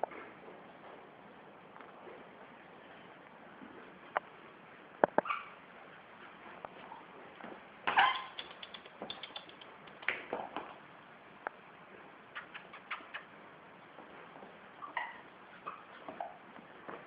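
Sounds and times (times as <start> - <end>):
high squeaks: 7.9 - 9.6
puppy claws ticking on tile: 8.0 - 10.3.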